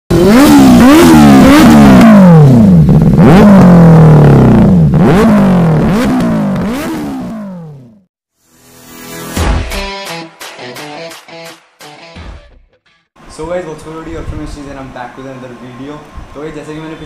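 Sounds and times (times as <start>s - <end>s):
motorcycle engine revving: 0.1s - 8.1s.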